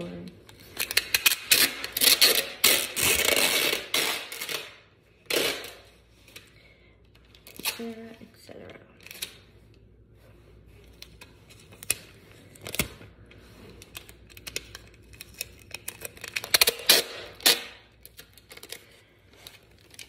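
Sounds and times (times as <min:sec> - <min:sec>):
tape pulled and torn: 0:00.6 - 0:06.5, 0:13.8 - 0:20.0.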